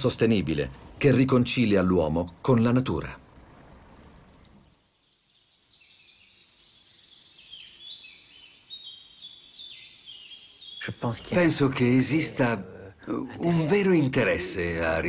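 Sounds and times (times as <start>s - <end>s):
background hiss: 0.0s - 15.0s
faint bird chirping: 4.2s - 13.6s.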